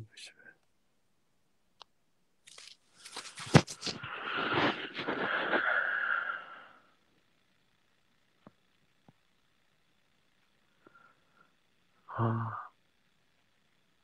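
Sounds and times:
rustling and crunching: 0:02.4 - 0:05.6.

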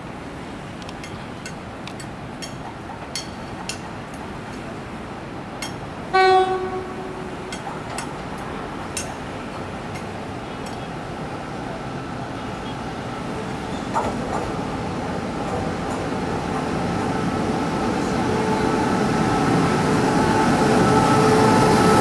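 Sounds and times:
train rumbling: 0:00.0 - 0:22.0
train horn blast: 0:06.1 - 0:07.6, 0:18.0 - 0:22.0.

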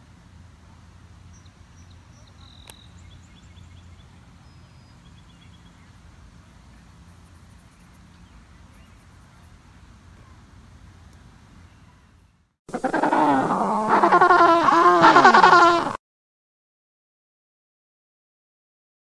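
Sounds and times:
low steady rumble: 0:00.0 - 0:14.8
small birds chirping: 0:01.3 - 0:10.4.

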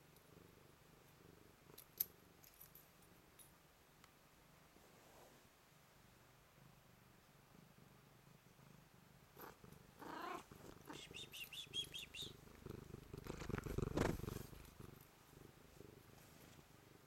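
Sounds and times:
cat purring: 0:00.0 - 0:02.5, 0:04.6 - 0:17.0
fur rubbing against camera: 0:13.1 - 0:14.7.

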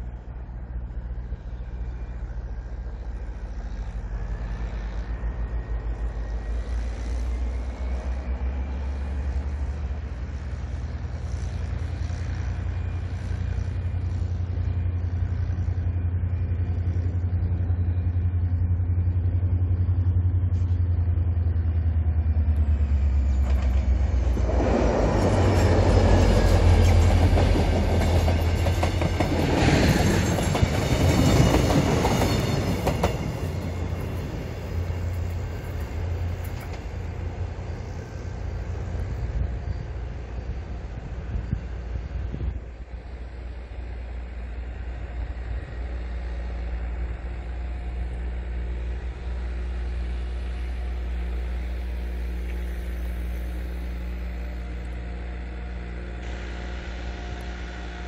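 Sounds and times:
diesel locomotive engine drone: 0:00.0 - 0:58.0
tractor engine: 0:07.2 - 0:58.0
train wheels clattering on rails: 0:23.0 - 0:39.3.

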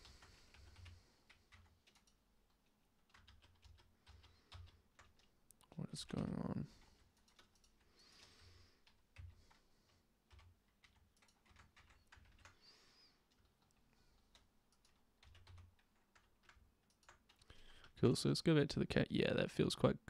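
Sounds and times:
keyboard keys clicking: 0:00.0 - 0:05.4, 0:06.1 - 0:09.6, 0:10.3 - 0:12.6, 0:13.3 - 0:17.5.

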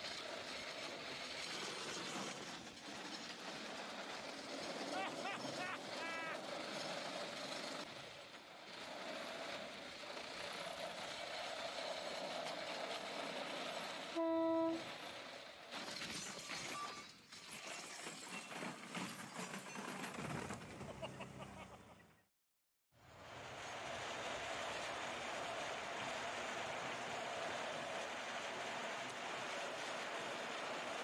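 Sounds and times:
cart wheels rattling on rails: 0:00.0 - 0:14.2, 0:14.8 - 0:21.2, 0:23.6 - 0:31.0
short horn blast: 0:14.2 - 0:14.9.

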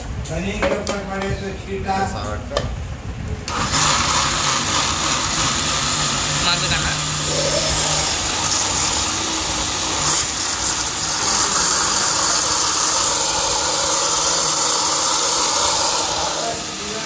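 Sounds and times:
mixer grinder running: 0:03.4 - 0:17.0.

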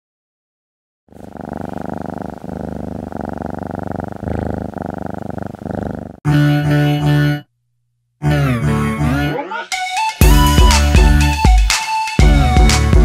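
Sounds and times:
cat purring: 0:01.1 - 0:06.2.

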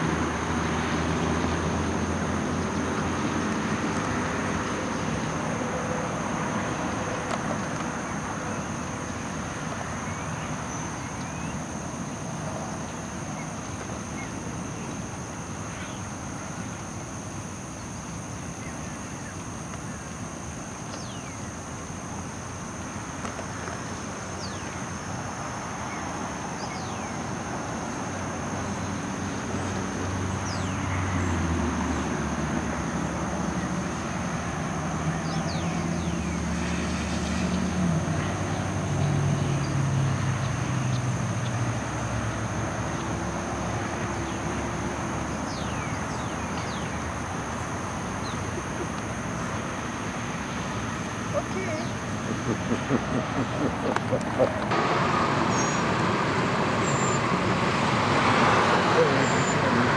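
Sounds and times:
outdoor background noise: 0:00.0 - 0:59.9
vehicle engine drone: 0:00.0 - 0:59.9.

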